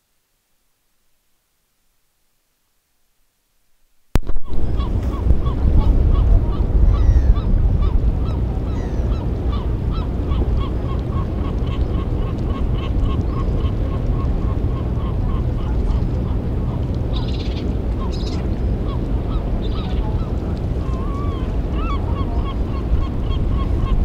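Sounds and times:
low rumble: 4.2 - 24.0
geese honking: 4.6 - 24.0.

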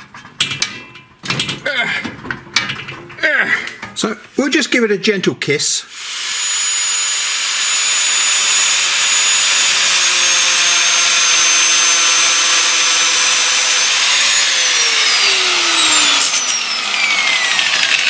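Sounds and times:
angle grinder cutting steel: 5.9 - 18.0.

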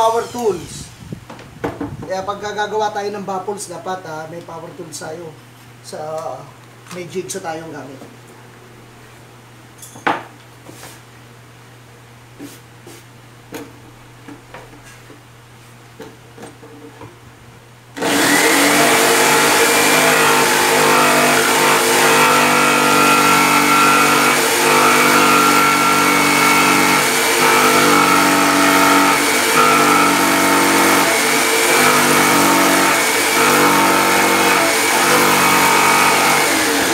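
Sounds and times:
jigsaw cutting wood: 18.0 - 36.9.

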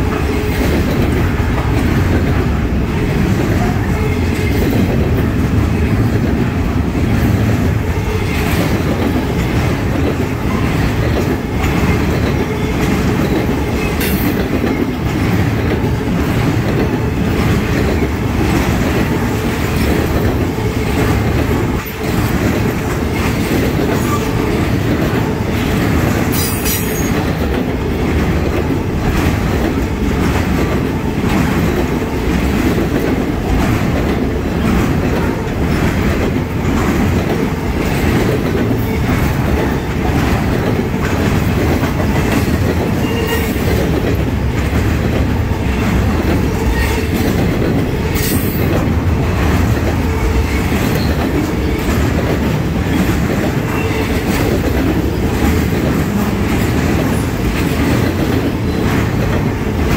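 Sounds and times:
freight train rumbling past: 0.0 - 59.9
wheels clacking over rail joints: 0.0 - 59.9.

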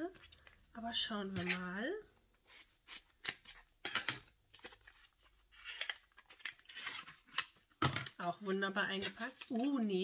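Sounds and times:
packaging crackling and rustling: 3.0 - 10.0.

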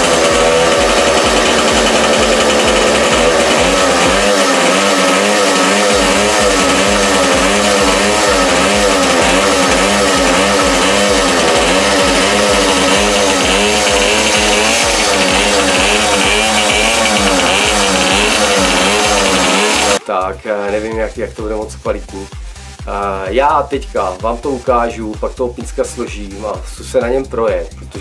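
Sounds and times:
two-stroke engine running: 0.0 - 20.0.

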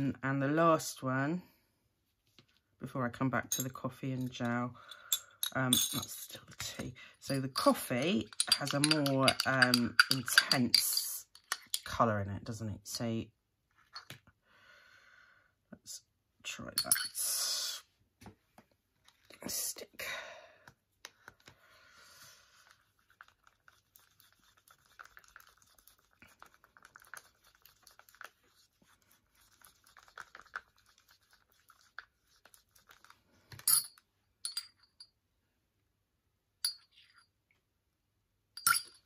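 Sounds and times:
stick scraping in plastic cup: 7.4 - 11.9, 22.7 - 33.2.

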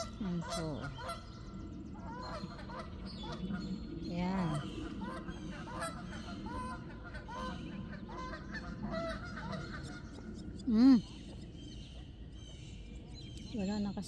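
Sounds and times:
geese honking: 0.0 - 10.4.

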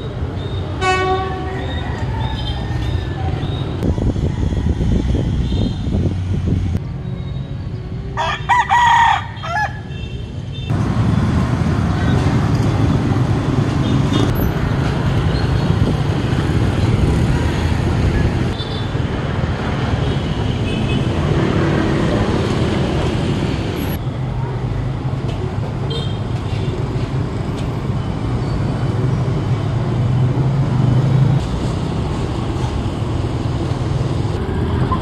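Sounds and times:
low rumble of vehicle noise: 0.0 - 35.0
rooster crowing: 8.2 - 9.9.

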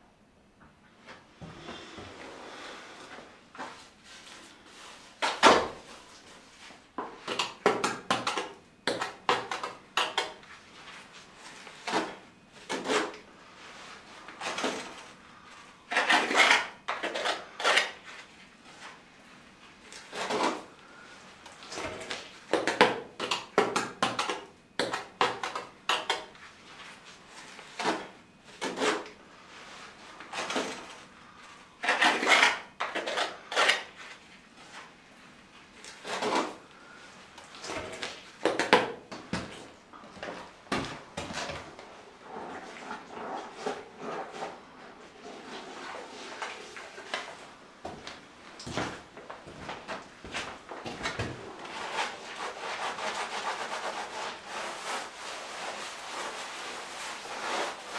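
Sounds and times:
hand tool scraping grout: 15.9 - 18.0, 31.8 - 33.9, 41.4 - 47.5, 51.6 - 57.9.

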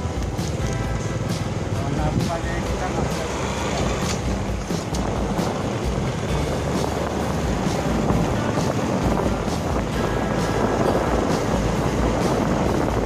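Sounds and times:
motorbike riding: 0.0 - 13.0
wind rushing over microphone: 0.0 - 13.0.

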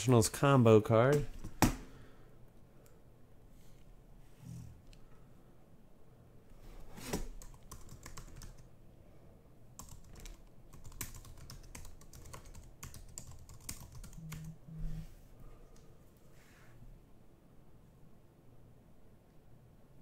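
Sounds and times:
brief low hums: 14.2 - 15.3.

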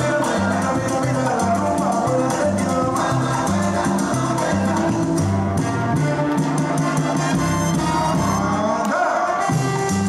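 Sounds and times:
dance music: 0.0 - 10.0.

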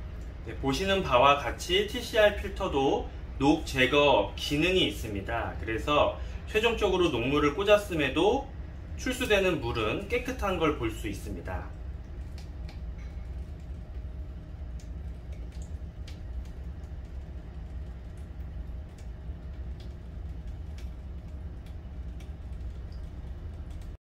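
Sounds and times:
water pump humming: 0.0 - 24.0
faint ticks: 14.7 - 24.0.

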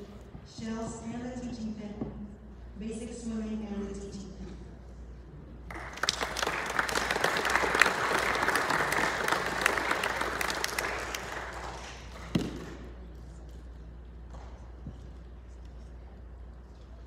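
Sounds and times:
audience applauding: 5.7 - 12.4.

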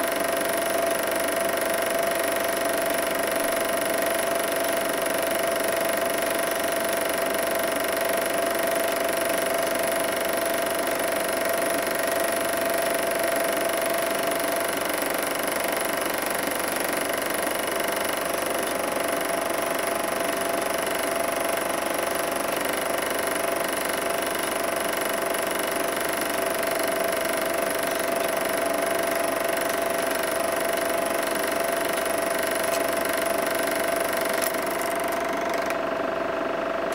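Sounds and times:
projector motor and fan whirring: 0.0 - 36.9
projector mechanism clatter: 25.1 - 35.8.

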